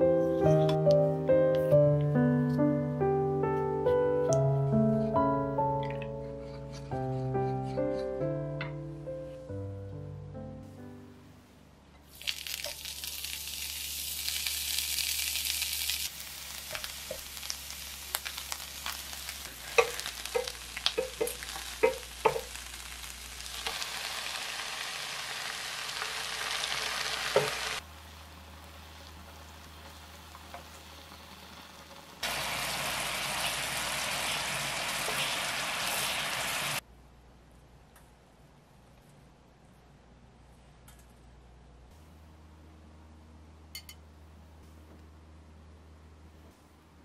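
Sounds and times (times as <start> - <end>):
oil sizzling in frying pan: 12.1 - 36.8.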